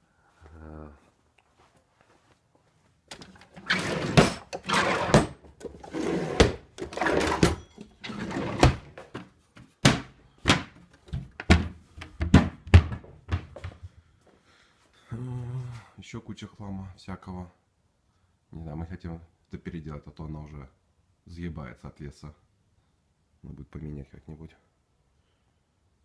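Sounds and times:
rustling and scraping: 0:01.1 - 0:09.8
sharp knocks and thunks: 0:09.8 - 0:13.8.

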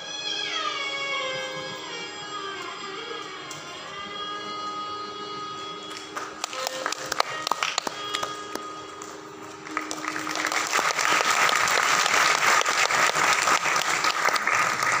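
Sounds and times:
held violin notes: 0:00.0 - 0:12.8
audience applause: 0:06.2 - 0:15.0.

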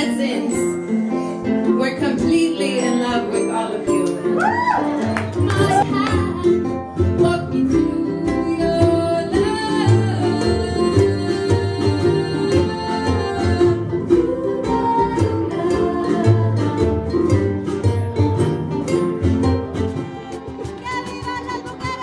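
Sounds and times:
strummed guitars: 0:00.0 - 0:22.0
upright bass: 0:01.6 - 0:22.0
woman singing into microphone: 0:01.8 - 0:17.2, 0:20.0 - 0:22.0.

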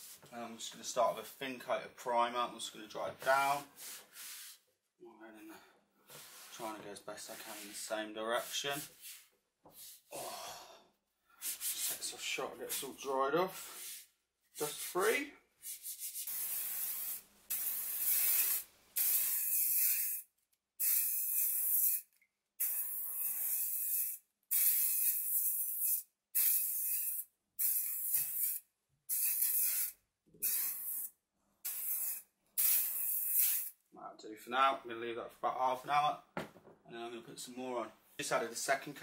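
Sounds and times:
aerosol can hissing: 0:15.7 - 0:20.2, 0:22.6 - 0:31.1, 0:31.7 - 0:33.8.

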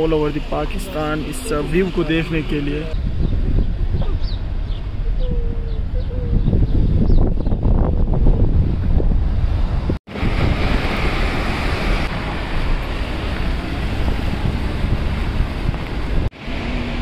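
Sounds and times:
car road noise: 0:00.0 - 0:17.0
wind rushing over microphone: 0:02.8 - 0:17.0.

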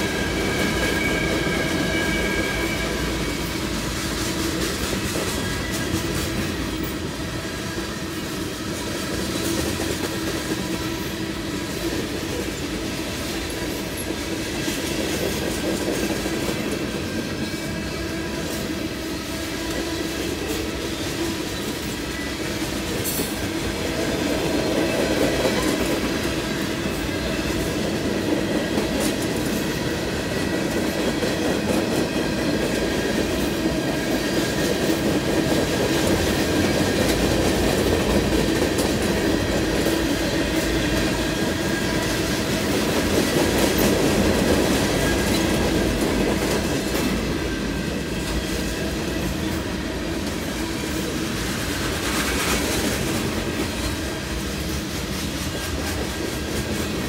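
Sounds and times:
faint high wheel squeal: 0:00.0 - 0:03.7
freight train rumbling: 0:00.0 - 0:57.0.

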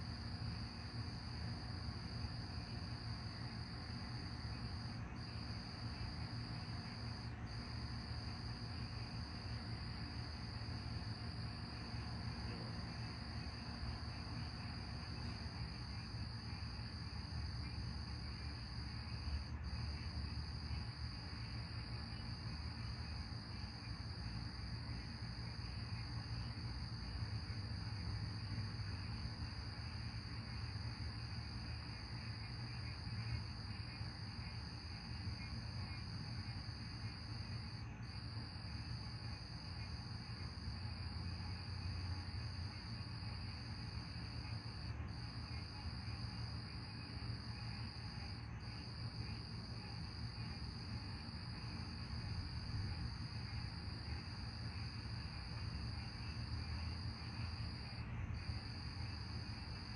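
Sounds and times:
night insects chirping: 0:00.0 - 0:59.9.

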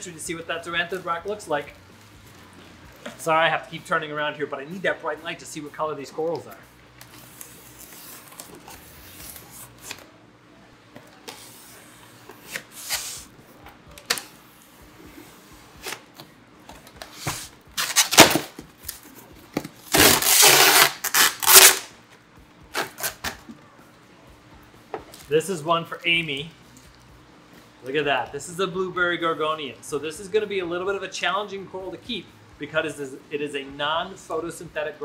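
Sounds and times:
packing tape tearing: 0:17.0 - 0:19.1, 0:19.9 - 0:21.9, 0:22.7 - 0:23.4.

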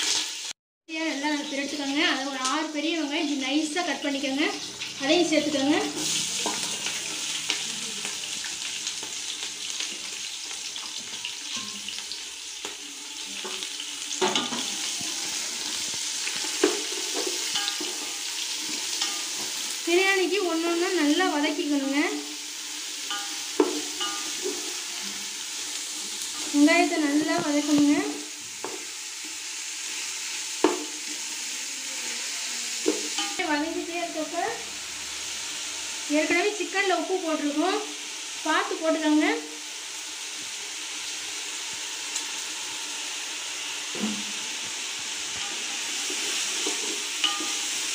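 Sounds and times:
onions sizzling in hot oil: 0:00.0 - 0:47.9
pot clatter: 0:11.1 - 0:12.0, 0:13.4 - 0:19.6, 0:23.1 - 0:24.8, 0:32.9 - 0:33.5, 0:45.3 - 0:47.9
sharp knock in pot: 0:30.6 - 0:31.0.

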